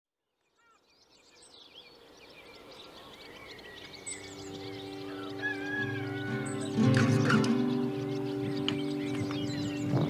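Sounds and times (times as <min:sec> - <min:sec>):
songbirds singing: 0:00.2 - 0:10.0
music with held notes: 0:03.9 - 0:10.0.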